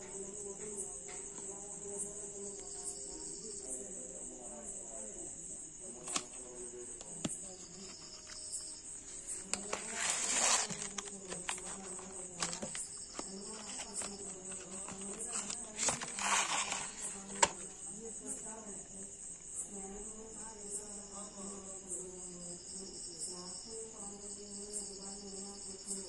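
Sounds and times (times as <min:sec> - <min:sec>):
crickets chirring: 0:00.0 - 0:26.0
cardboard box rustling scrapes: 0:09.0 - 0:17.6.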